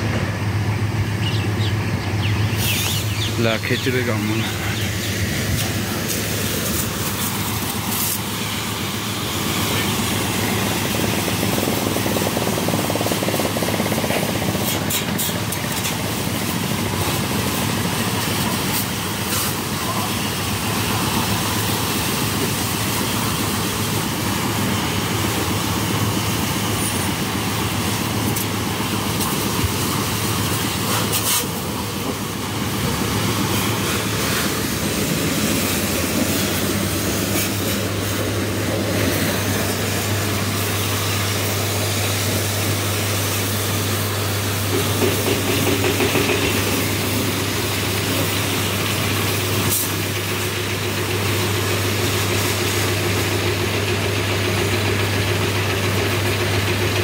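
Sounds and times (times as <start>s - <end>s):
high-pressure water jet spraying: 0.0s - 57.0s
washing machinery hum: 0.0s - 57.0s.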